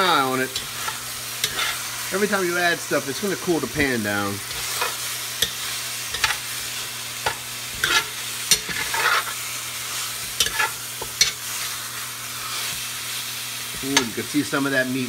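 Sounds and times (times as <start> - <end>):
meat sizzling in a pot: 0.0 - 15.0
metal spoon scraping a pot: 0.5 - 1.9, 4.4 - 6.4, 7.2 - 9.4, 10.2 - 11.6.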